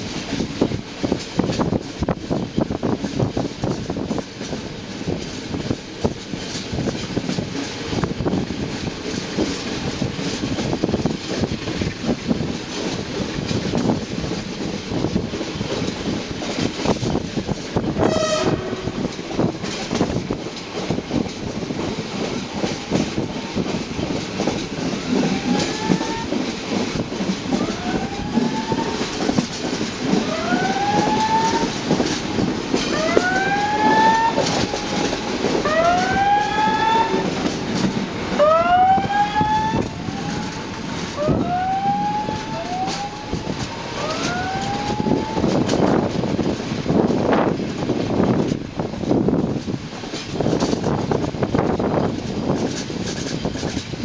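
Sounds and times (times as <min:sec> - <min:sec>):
train wheels rumbling on track: 0:00.0 - 0:54.0.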